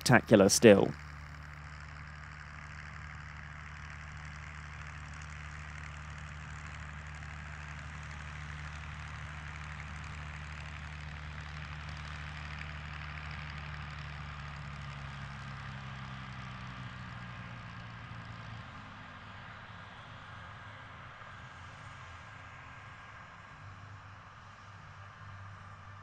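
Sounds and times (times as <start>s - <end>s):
constant hiss: 0.0s - 1.0s
engine idling hum: 0.0s - 26.0s.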